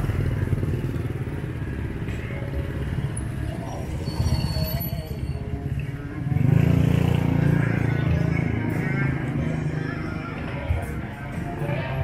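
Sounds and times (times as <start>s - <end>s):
motor vehicles passing: 0.0s - 12.0s.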